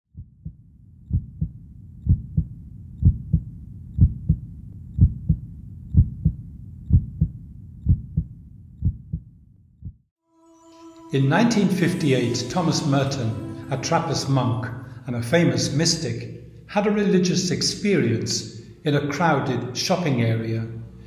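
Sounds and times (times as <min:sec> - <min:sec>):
heartbeat thumps: 0:00.2 - 0:10.0.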